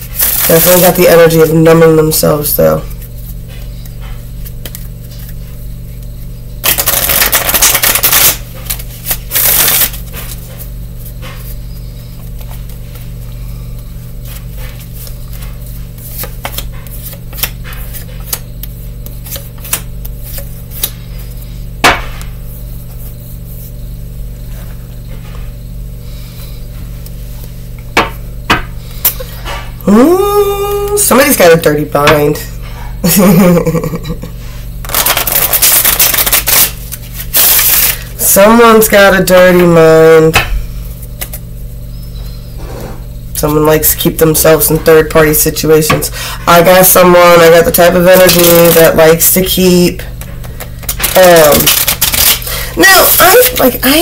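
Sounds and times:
steady low hum: 0.0 - 54.0
handling deck of cards: 2.8 - 11.6, 14.2 - 21.0, 34.8 - 38.0, 41.0 - 41.5, 48.2 - 48.9, 50.5 - 53.8
cards riffle shuffled: 4.4 - 5.4, 6.6 - 10.4, 16.0 - 21.0, 34.8 - 38.0, 41.1 - 41.4, 48.2 - 48.8, 50.4 - 52.6.

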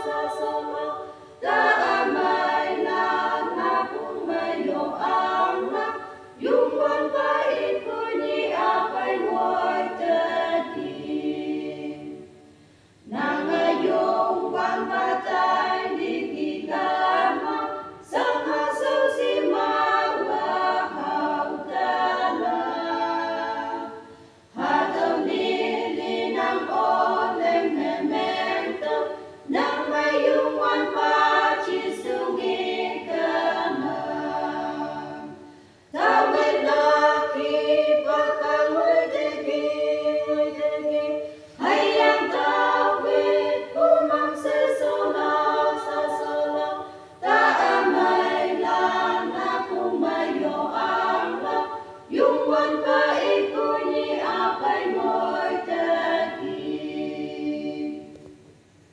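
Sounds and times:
women's choir singing a hymn: 0.0 - 58.5.

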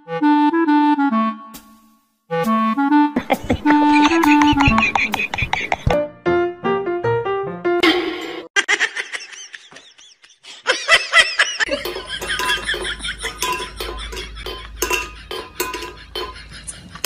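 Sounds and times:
high-pitched laughing: 3.2 - 6.0, 8.6 - 17.0
metal bowl clinking on floor: 11.7 - 16.6.

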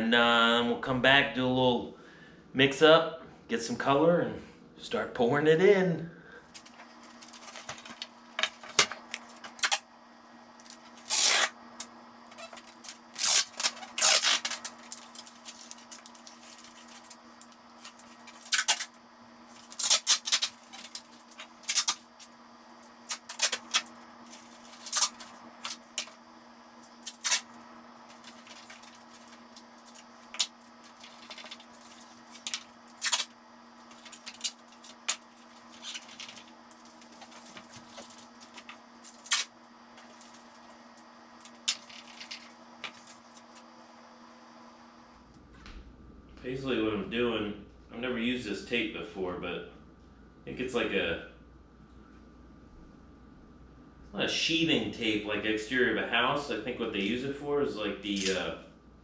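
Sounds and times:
steady low hum: 0.0 - 59.0
tape tearing off roll: 6.6 - 9.8, 10.6 - 11.6, 12.3 - 19.0, 19.6 - 22.4, 23.0 - 26.2, 27.0 - 40.3.

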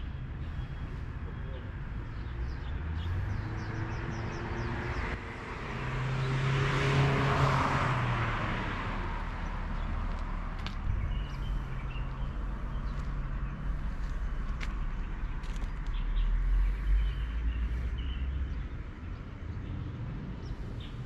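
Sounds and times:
low hum of traffic: 0.0 - 21.0
car passing: 2.1 - 21.0.

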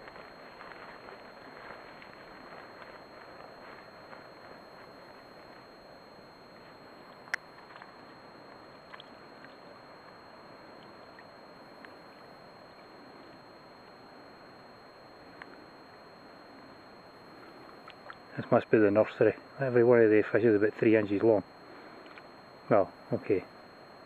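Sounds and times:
faint ticks: 0.0 - 18.6, 21.7 - 22.4.

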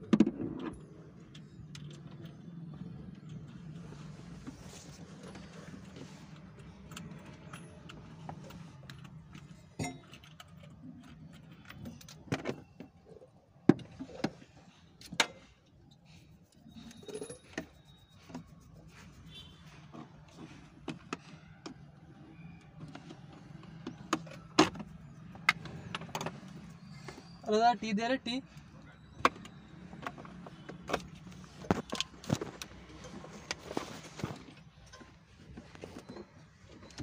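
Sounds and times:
metallic clicks and clinks of tools: 5.8 - 12.3, 16.6 - 18.4.

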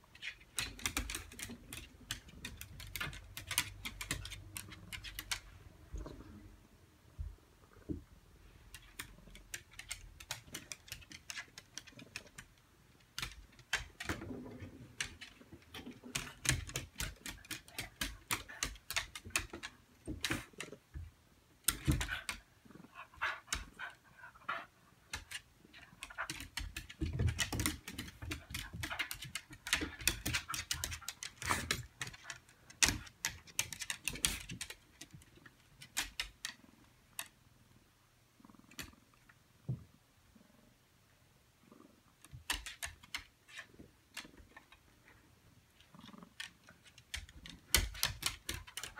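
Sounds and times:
dog claws clicking on tiles: 0.1 - 5.6, 8.7 - 21.0, 21.6 - 22.5, 25.0 - 37.3, 42.2 - 44.8, 45.8 - 48.9.

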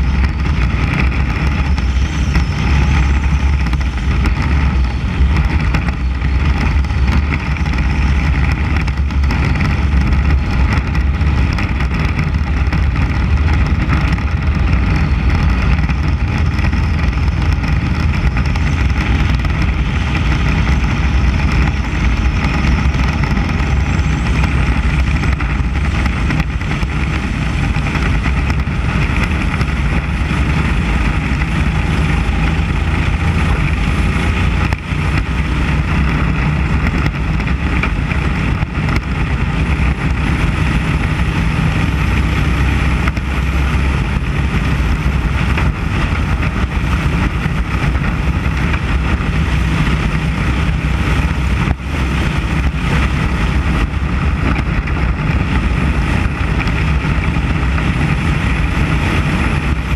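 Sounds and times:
race car engine at high revs: 0.0 - 59.9
wind rumble: 0.0 - 59.9.

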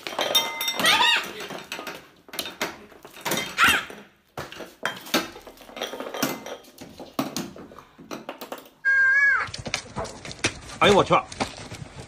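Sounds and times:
food bowls clattering: 0.0 - 8.8
cat yowl: 8.8 - 9.5
cats fighting: 8.8 - 12.0.

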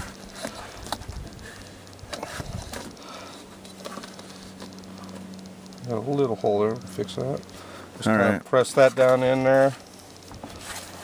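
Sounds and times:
sharp little ticks: 0.0 - 11.0.

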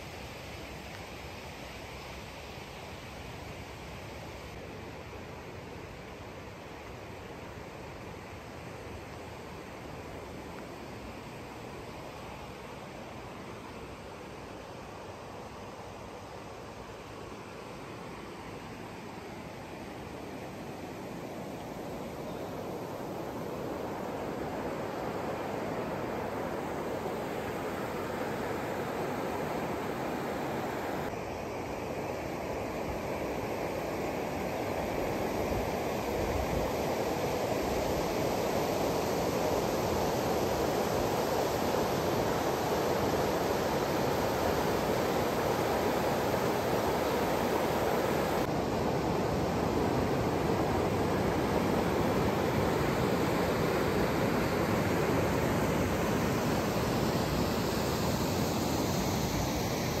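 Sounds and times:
river water rushing: 18.1 - 60.0.

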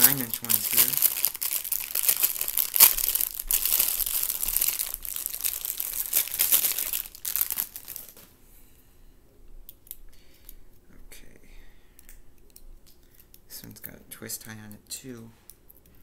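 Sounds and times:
plastic packaging crinkling: 0.0 - 8.3.

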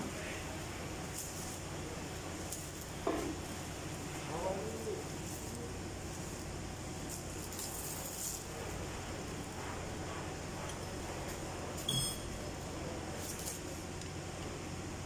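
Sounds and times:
workshop hum: 0.0 - 15.0
metallic ping: 11.9 - 12.3.

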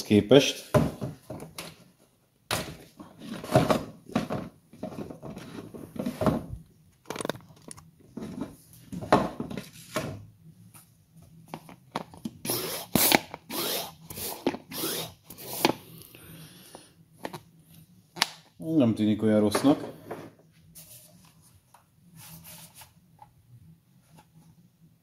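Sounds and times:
plastic sprayer parts clicking and knocking: 2.5 - 9.6.

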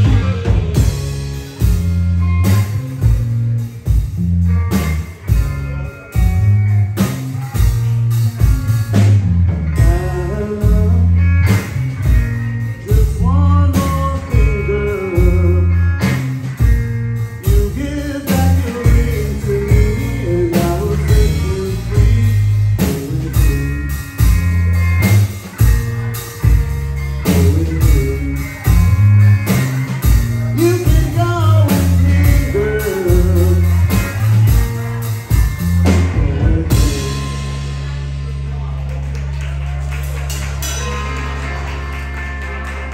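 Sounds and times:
drum kit: 0.0 - 42.9
electric bass: 0.0 - 42.9
electric guitar: 0.0 - 42.9
person singing: 9.6 - 16.7, 17.3 - 24.4, 25.6 - 38.1.

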